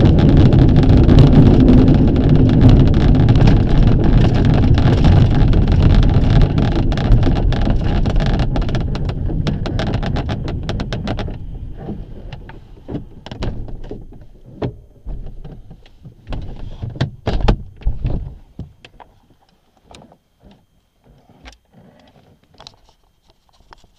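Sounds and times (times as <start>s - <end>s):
wheel rumbling over rough ground: 0.0s - 18.5s
knocks and clunks: 2.5s - 19.1s.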